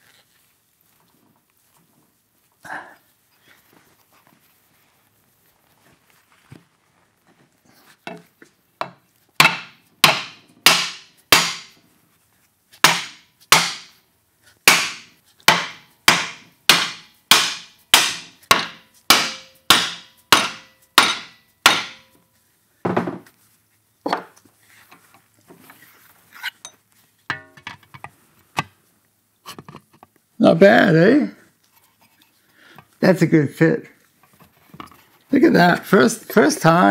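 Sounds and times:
mallet hammering sheet metal: 9.4s - 11.8s, 12.8s - 14.0s, 14.7s - 22.2s.

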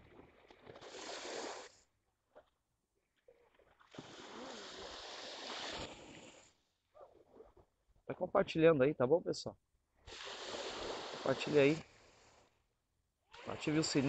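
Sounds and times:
surf washing on a beach: 10.1s - 12.5s, 13.4s - 14.0s.

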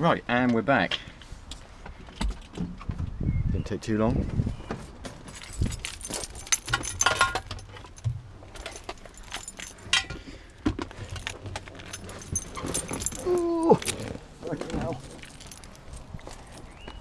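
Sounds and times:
spray cans clattering: 6.0s - 9.2s.

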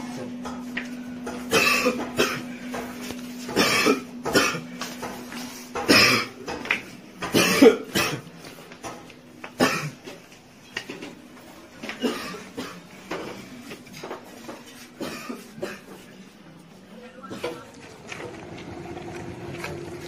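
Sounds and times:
man coughing: 1.5s - 2.6s, 3.5s - 4.8s, 5.8s - 6.4s, 7.2s - 8.3s, 9.6s - 10.1s, 11.9s - 12.9s, 15.0s - 16.0s.

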